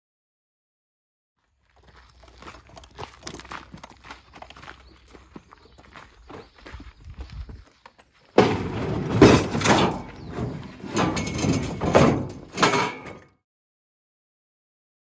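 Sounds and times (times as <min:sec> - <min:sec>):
metal clamps clanking in a tub: 0:09.1 - 0:13.3.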